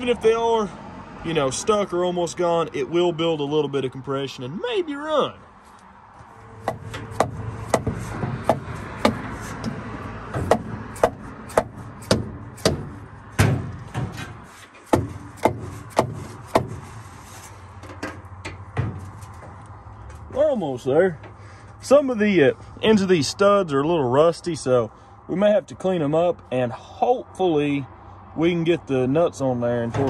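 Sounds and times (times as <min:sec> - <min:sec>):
mallet knocking on metal: 0:06.6 - 0:09.2, 0:10.4 - 0:14.1.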